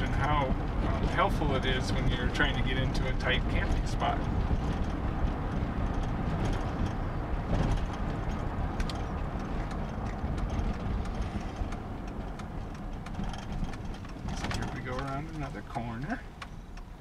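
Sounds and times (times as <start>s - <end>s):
road and engine rumble: 0.0s - 17.0s.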